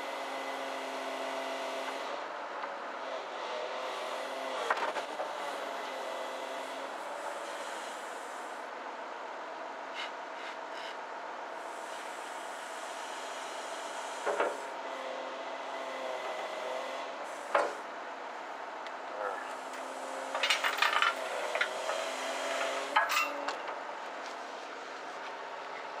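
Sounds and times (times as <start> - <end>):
metal ring clanking and scraping: 20.3 - 21.8, 22.9 - 23.7.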